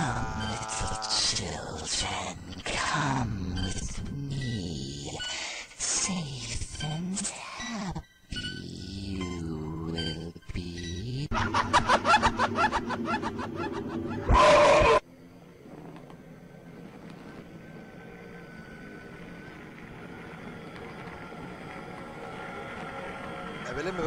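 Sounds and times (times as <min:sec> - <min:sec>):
eerie horror soundtrack: 0:00.0 - 0:24.0
faint low hum: 0:08.4 - 0:24.0.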